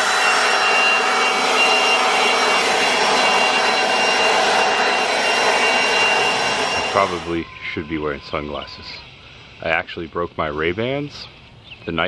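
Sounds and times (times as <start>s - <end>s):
leaf blower running: 0.0s - 8.0s.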